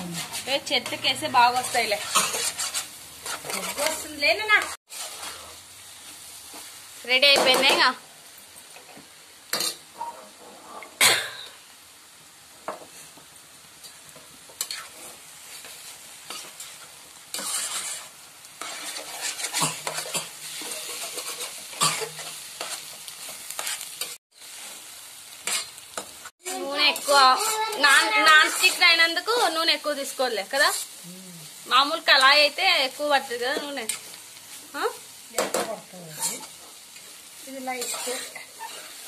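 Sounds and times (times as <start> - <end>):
spoon scraping frying pan: 0.0 - 5.6, 8.8 - 11.0, 13.9 - 24.8, 25.4 - 31.0, 33.4 - 34.2, 35.4 - 39.0
eggs sizzling: 0.0 - 39.0.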